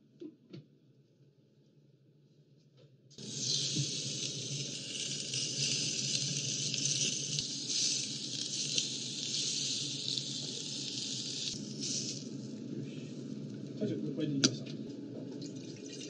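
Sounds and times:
small crackles: 3.2 - 12.4
fish sizzling on a grill plate: 3.2 - 12.5.

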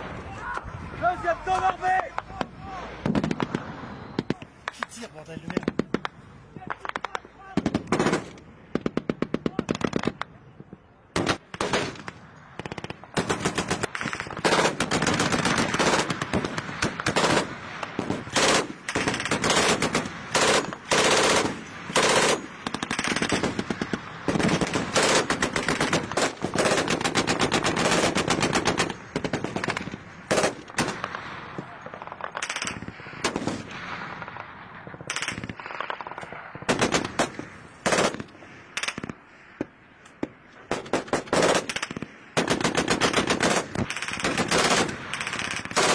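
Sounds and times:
machine-gun fire: 11.2 - 31.2, 35.0 - 39.1, 40.7 - 45.9.

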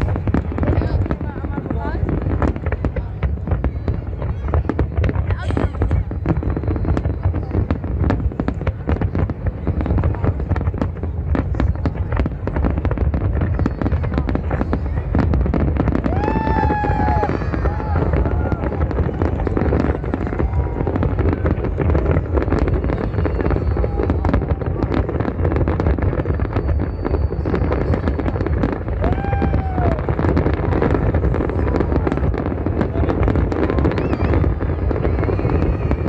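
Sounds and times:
crowd voices: 0.0 - 36.0
deep rumble: 0.0 - 36.0
fireworks bangs and crackling: 0.0 - 36.0
people shouting: 16.0 - 21.3, 28.9 - 30.7.

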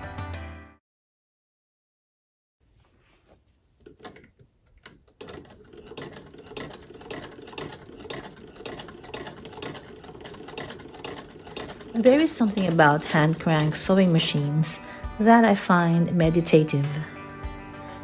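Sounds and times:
sewing machine clicking: 3.8 - 14.8.

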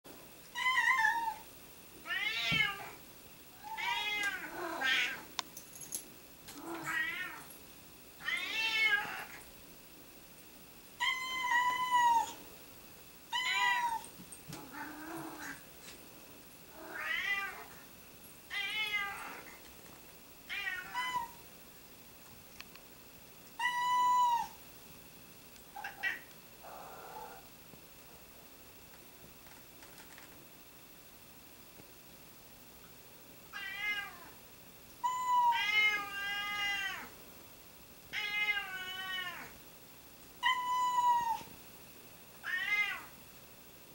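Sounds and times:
cats meowing: 2.1 - 3.0, 3.6 - 5.3, 6.6 - 7.5, 8.2 - 9.4, 16.8 - 17.7, 18.5 - 19.5, 23.6 - 24.6, 25.8 - 27.4, 35.0 - 37.1, 38.1 - 39.5, 40.4 - 41.5, 42.4 - 43.1.

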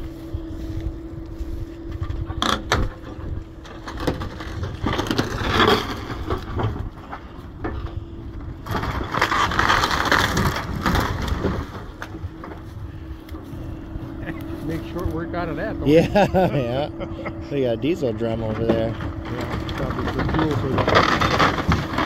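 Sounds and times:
steady engine hum: 0.0 - 22.0
wood crunching and cracking: 0.0 - 22.0.

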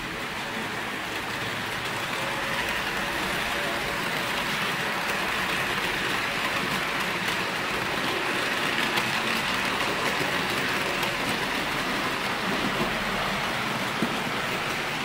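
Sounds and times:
model train wagons rolling on rails: 0.0 - 15.0.

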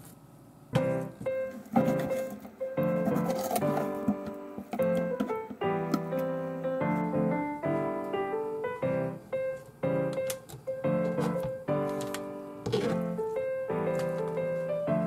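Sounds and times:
piano chords: 0.7 - 15.0.

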